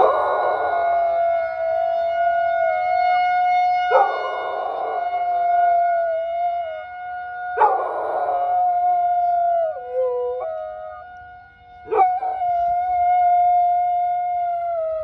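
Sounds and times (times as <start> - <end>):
dog howling: 0.0 - 2.9, 3.9 - 6.8, 7.5 - 11.0, 11.9 - 15.0
warning siren wailing: 0.0 - 15.0.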